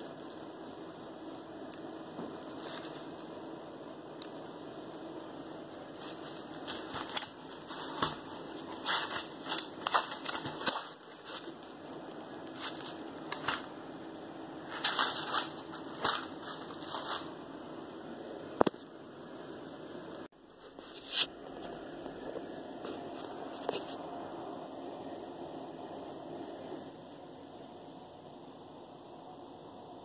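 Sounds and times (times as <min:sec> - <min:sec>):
cardboard box crackling: 0:05.9 - 0:13.7, 0:14.6 - 0:17.3.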